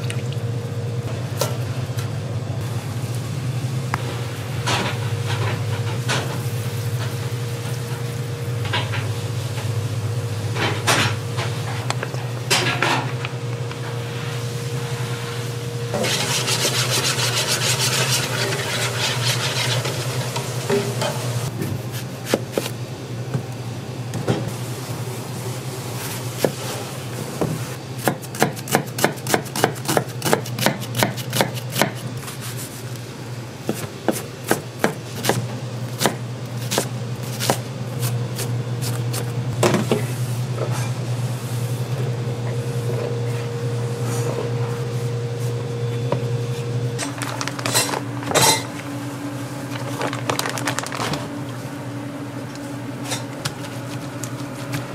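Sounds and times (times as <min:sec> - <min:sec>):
knife chopping on cutting board: 0:28.0 - 0:32.0.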